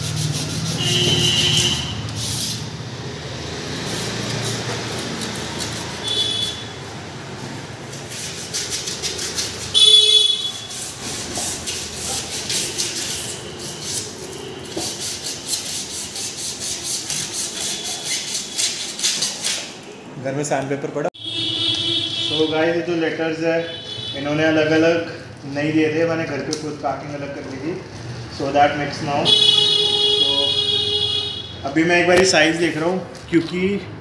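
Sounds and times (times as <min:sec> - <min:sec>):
sandpaper rasping on rubber: 0:00.0 - 0:02.8, 0:03.6 - 0:06.7, 0:07.9 - 0:19.7
car horn toot: 0:00.8 - 0:02.1, 0:06.0 - 0:06.8, 0:09.7 - 0:10.7, 0:13.4 - 0:14.9, 0:21.2 - 0:22.6, 0:23.6 - 0:24.3, 0:29.2 - 0:31.6.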